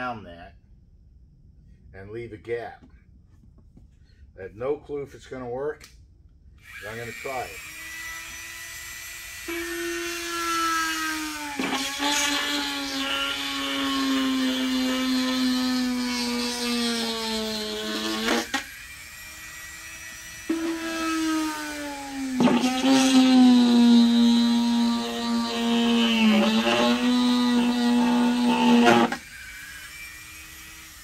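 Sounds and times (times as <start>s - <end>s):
rotary tool whining: 6.6s - 31.0s.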